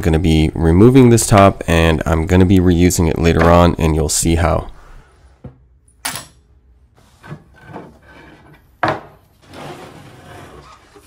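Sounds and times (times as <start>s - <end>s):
wood rubbing and scraping: 7.0s - 11.0s.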